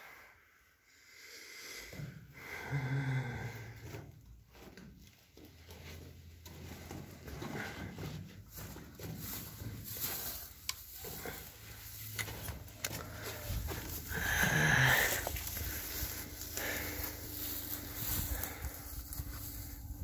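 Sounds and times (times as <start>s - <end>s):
breathy rasping sound: 0.9s - 4.1s, 11.0s - 19.8s
clothing and bag rustling: 5.2s - 20.0s.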